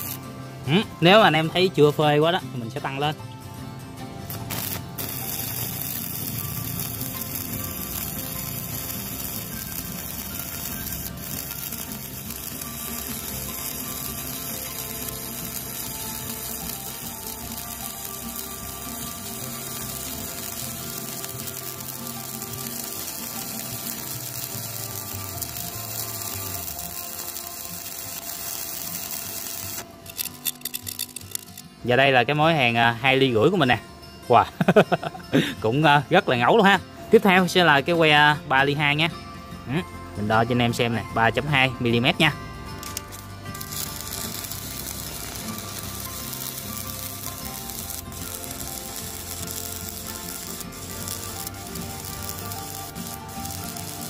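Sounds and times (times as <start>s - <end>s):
welding arc crackling hiss: 0.0s - 0.3s, 4.2s - 31.8s, 42.8s - 54.0s.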